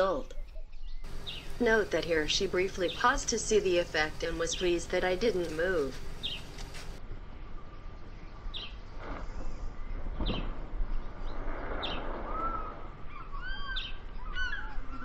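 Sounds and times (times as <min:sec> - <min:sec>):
birds chirping: 0:00.0 - 0:09.0, 0:09.7 - 0:15.0
low background rumble: 0:00.0 - 0:15.0.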